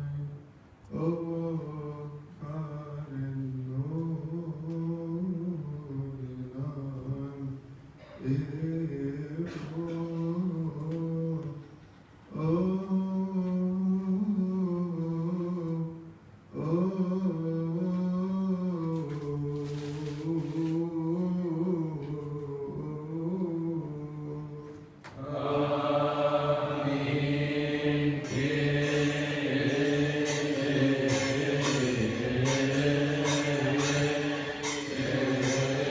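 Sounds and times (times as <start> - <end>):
man chanting into microphone: 0.0 - 11.7, 12.3 - 35.9
metallic percussion strikes: 26.6 - 35.9.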